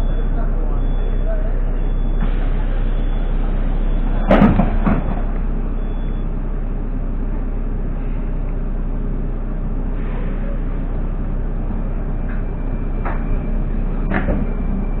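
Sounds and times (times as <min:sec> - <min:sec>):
metro train rumble and hum: 0:00.0 - 0:15.0
sharp clunks: 0:04.3 - 0:05.2.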